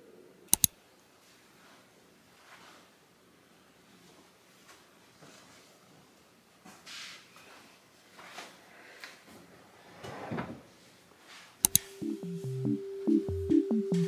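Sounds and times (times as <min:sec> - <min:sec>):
sharp click: 0:00.5 - 0:00.8, 0:11.6 - 0:11.9
clothes rustling: 0:01.2 - 0:03.0
electronic music with steady beat: 0:11.7 - 0:14.0.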